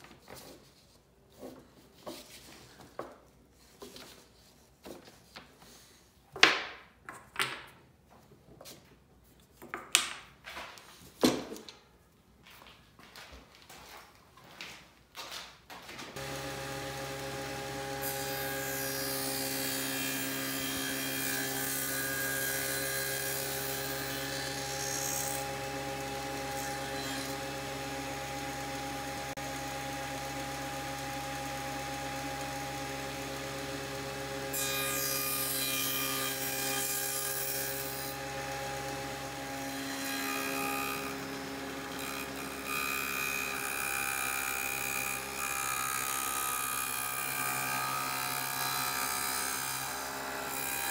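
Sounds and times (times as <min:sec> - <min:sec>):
saw blade cutting wood: 0:16.2 - 0:50.9
table saw motor hum: 0:16.2 - 0:50.9.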